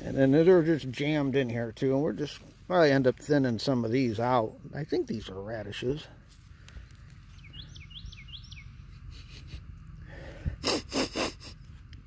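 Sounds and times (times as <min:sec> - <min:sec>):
bird chirping: 0:07.2 - 0:09.0
man sniffing: 0:09.1 - 0:11.6.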